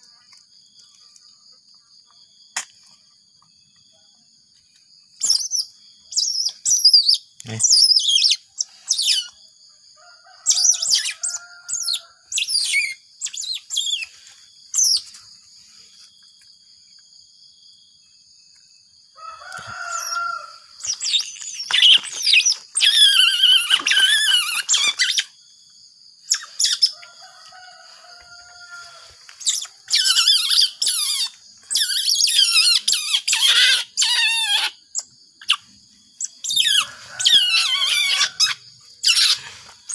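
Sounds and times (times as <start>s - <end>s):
otter pup chirping and squealing: 5.2s - 9.4s, 10.5s - 15.1s, 20.8s - 25.4s, 26.3s - 27.0s, 29.4s - 39.9s.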